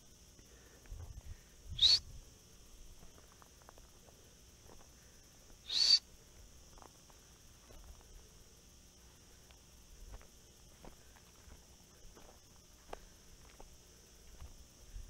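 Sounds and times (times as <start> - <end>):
high insect buzz: 0.0 - 15.0
person whistling: 1.8 - 2.0, 5.7 - 6.0.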